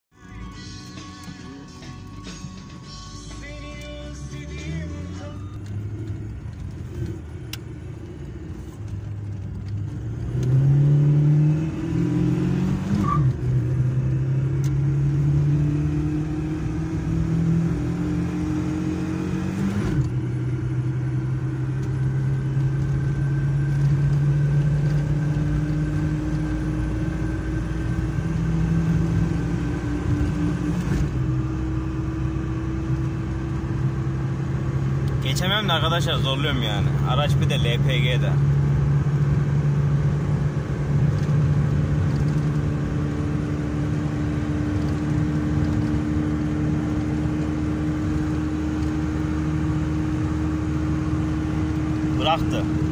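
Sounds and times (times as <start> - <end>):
car engine accelerating: 0.3 - 52.9.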